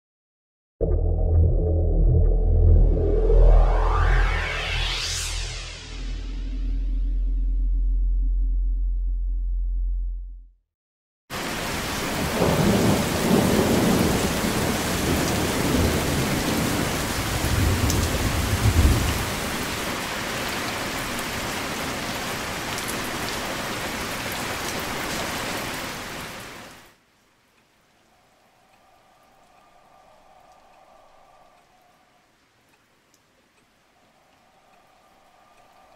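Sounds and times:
heavy rain falling: 11.3 - 35.9
rolling thunder rumble: 12.1 - 19.7.

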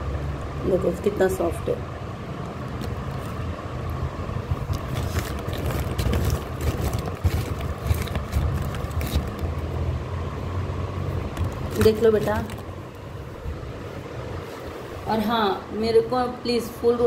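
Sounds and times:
steady low rumble: 0.0 - 15.2
clay lumps clicking and scraping: 4.7 - 9.6, 11.2 - 12.8.

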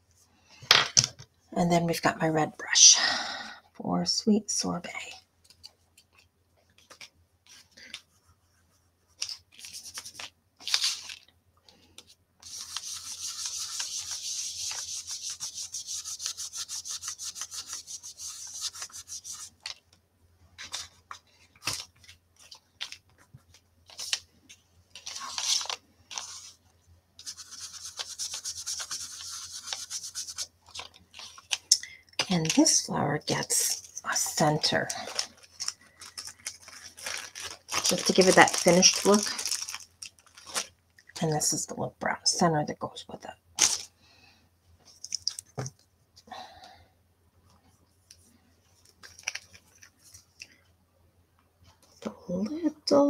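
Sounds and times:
brush scratching on cardstock: 12.4 - 19.6, 27.2 - 30.5.

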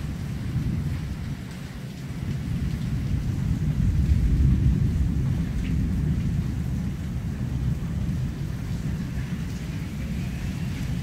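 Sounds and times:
rain hiss: 0.0 - 11.0
thunder rumbling: 2.4 - 11.0.

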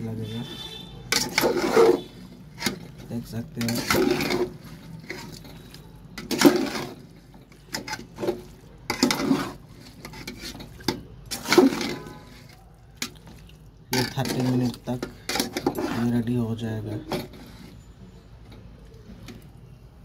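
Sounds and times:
spatula scraping in a metal pot: 0.2 - 13.1, 13.9 - 18.6.

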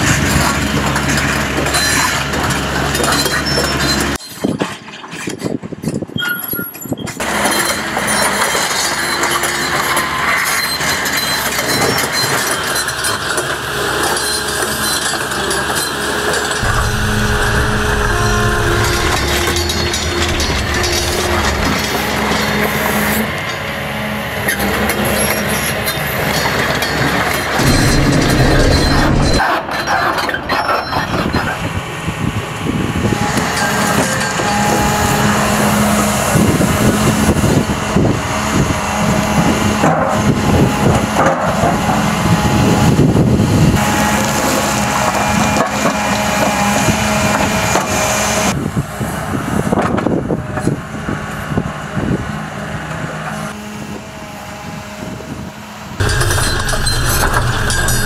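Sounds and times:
cable plough dragging through stony ground: 0.0 - 31.7, 56.0 - 58.0
excavator engine running: 7.2 - 31.3, 50.9 - 58.0.

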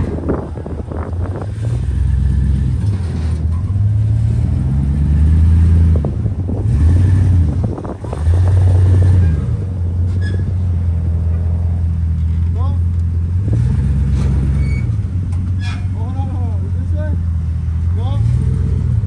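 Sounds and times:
pickup truck engine revving: 0.0 - 12.1, 12.9 - 15.6.

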